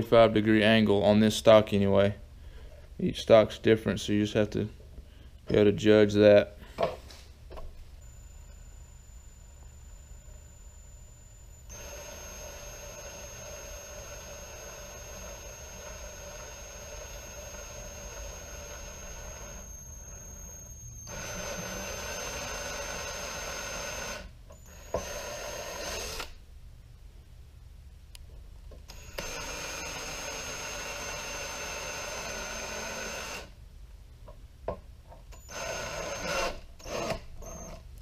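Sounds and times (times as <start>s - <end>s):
cordless drill motor whine: 8.0s - 26.4s, 28.9s - 33.6s, 35.3s - 37.8s.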